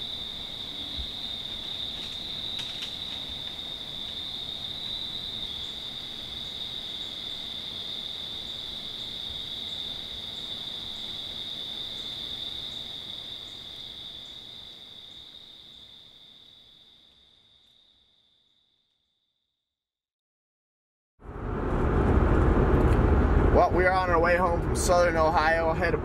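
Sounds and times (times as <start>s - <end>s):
crickets trilling: 0.0s - 19.4s, 23.7s - 26.0s.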